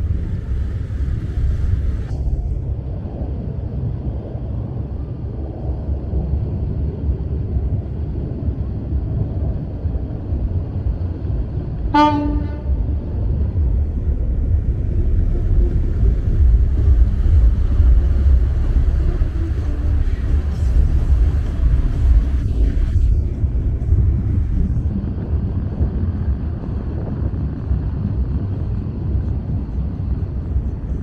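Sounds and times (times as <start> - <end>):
boat engine and water rumble: 0.0 - 31.0
boat horn toot: 11.9 - 12.9.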